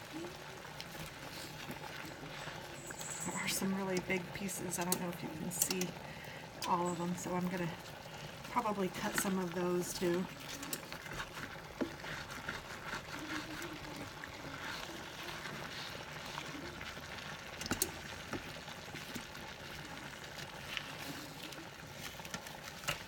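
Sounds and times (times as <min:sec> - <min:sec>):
stir-fry bubbling and sizzling: 0:00.0 - 0:23.0
spatula scraping a pan: 0:08.9 - 0:23.0.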